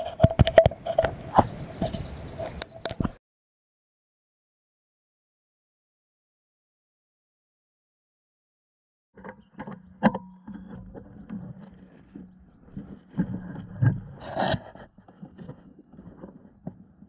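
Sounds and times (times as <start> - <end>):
rifle scope handling scrapes: 0.0 - 3.0, 10.4 - 17.0.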